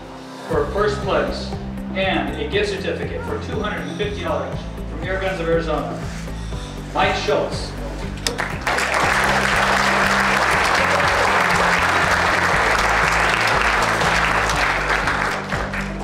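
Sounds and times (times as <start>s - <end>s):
background music: 0.0s - 16.0s
audience applauding: 8.2s - 16.0s.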